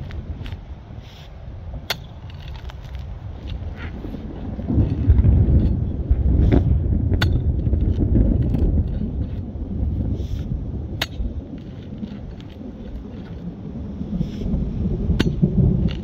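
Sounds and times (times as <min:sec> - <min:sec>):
thunder rumbling: 0:03.1 - 0:16.0.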